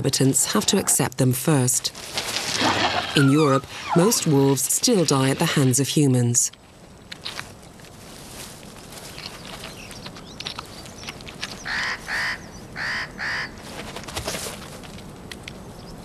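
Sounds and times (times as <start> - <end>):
wet clicks and crackles: 6.5 - 7.9, 8.9 - 11.8, 14.8 - 15.6
wolf chewing a carcass: 8.7 - 12.2
bird honking calls: 11.7 - 13.6.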